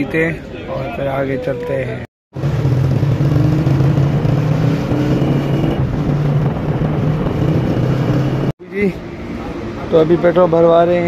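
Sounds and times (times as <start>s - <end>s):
wind and road noise: 0.0s - 11.0s
motorcycle engine running: 2.4s - 8.5s.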